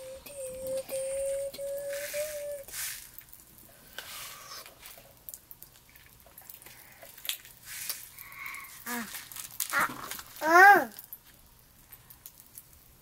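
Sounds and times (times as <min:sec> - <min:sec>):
popping candy crackling: 0:00.0 - 0:13.0
candy packet rustling: 0:04.4 - 0:12.6.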